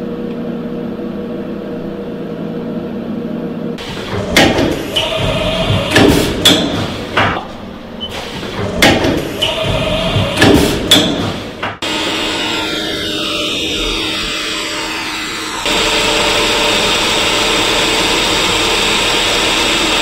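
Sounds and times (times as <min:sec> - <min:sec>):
loud metallic clunks: 0:03.8 - 0:11.9
short machine whines: 0:11.8 - 0:20.0.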